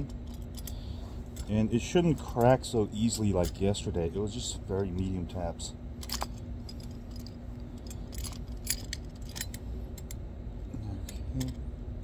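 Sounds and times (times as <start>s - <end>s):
steady low hum: 0.0s - 12.0s
locking pliers clicking and rattling: 6.0s - 10.2s.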